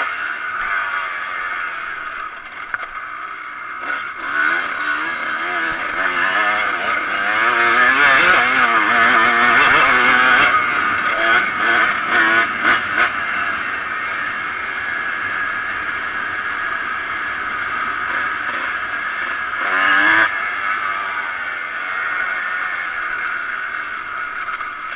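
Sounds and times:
motorcycle engine revving: 0.0s - 24.9s.

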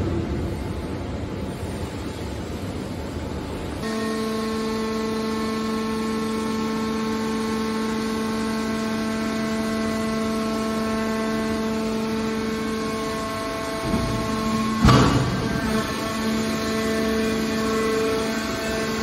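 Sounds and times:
hydraulic pump humming: 3.8s - 19.0s.

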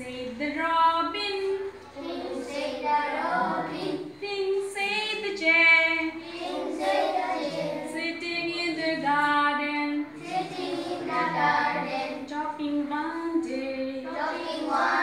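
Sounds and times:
woman singing: 0.0s - 1.6s, 7.9s - 10.1s, 12.2s - 14.1s
children singing together: 1.6s - 4.2s, 6.0s - 8.2s, 10.0s - 15.0s.

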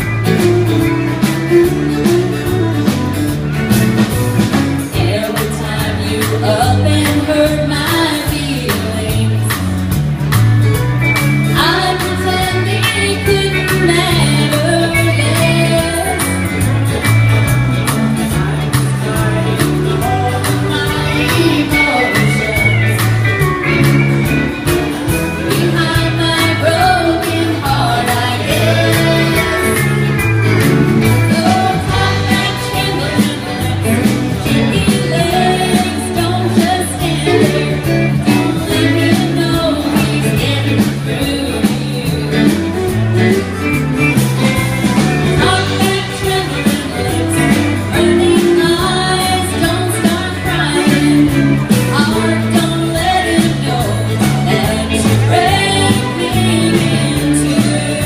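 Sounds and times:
acoustic guitar: 0.0s - 58.0s
bass line: 0.0s - 58.0s
drums keeping a beat: 0.0s - 58.0s
woman singing: 4.8s - 10.0s, 11.4s - 16.8s, 18.1s - 23.4s, 25.1s - 30.3s, 31.0s - 43.3s, 45.2s - 58.0s.

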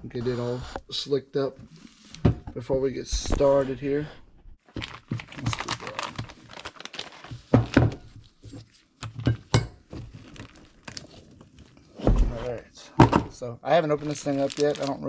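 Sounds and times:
plastic sheet rustling: 4.7s - 8.4s, 13.9s - 15.0s
items knocking on workbench: 7.5s - 8.1s, 13.0s - 13.4s.

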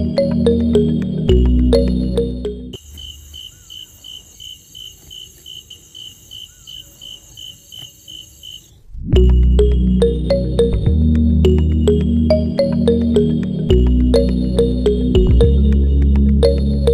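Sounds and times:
cricket chirping: 2.8s - 8.9s.

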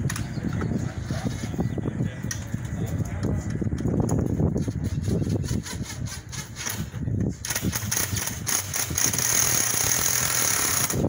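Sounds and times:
cordless drill driving a screw: 7.8s - 11.0s.

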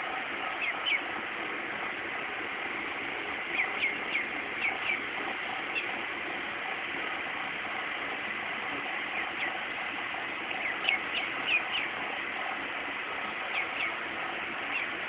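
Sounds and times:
steady background hiss: 0.0s - 15.0s
duckling peeping: 0.5s - 1.1s, 3.4s - 6.0s, 9.1s - 9.6s, 10.5s - 12.0s, 13.5s - 14.0s, 14.6s - 15.0s.

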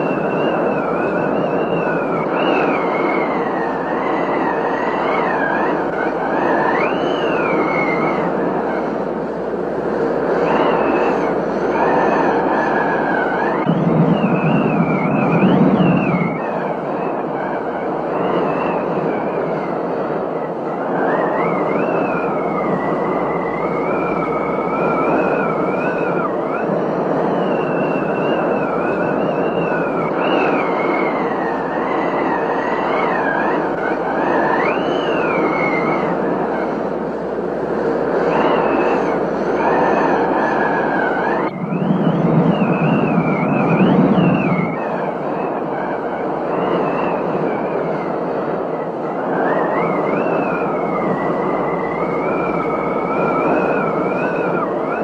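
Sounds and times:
wavering whistle-like tones: 0.0s - 55.0s
wind: 0.0s - 55.0s.

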